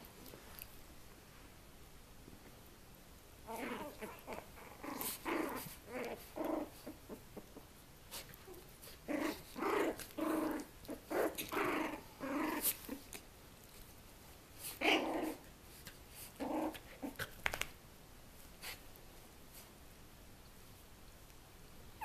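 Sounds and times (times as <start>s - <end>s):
dogs growling in play: 3.4s - 13.2s, 14.6s - 17.4s.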